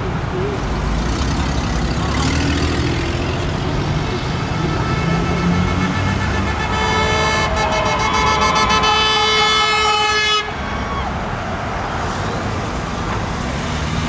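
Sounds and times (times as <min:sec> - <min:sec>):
street traffic rumbling: 0:00.0 - 0:14.0
car horn long honk: 0:04.6 - 0:10.6.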